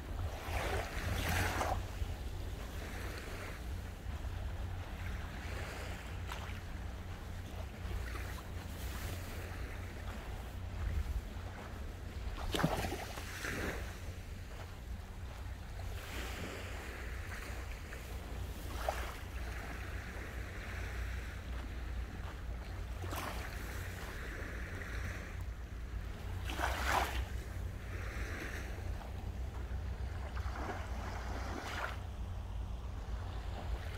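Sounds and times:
sea waves washing onto beach: 0:00.0 - 0:32.1
wind rumble on microphone: 0:00.0 - 0:33.9.

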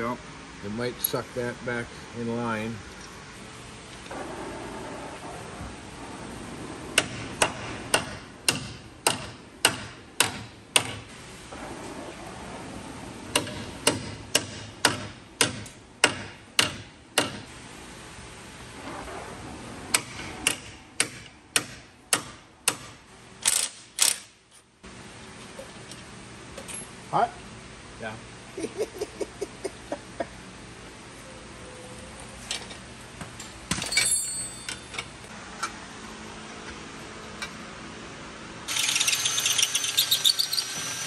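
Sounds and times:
cordless impact wrench: 0:38.7 - 0:41.0.

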